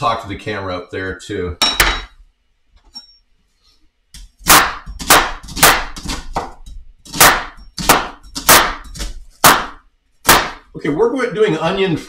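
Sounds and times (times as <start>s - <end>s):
knife chopping on wooden board: 4.2s - 10.7s.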